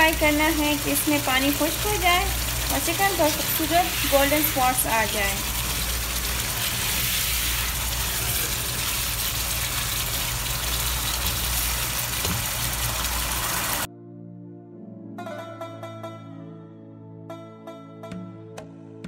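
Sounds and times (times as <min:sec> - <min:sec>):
food sizzling and bubbling in pan: 0:00.0 - 0:13.9
spatula stirring in pan: 0:05.4 - 0:11.8
quiet music: 0:13.9 - 0:19.0.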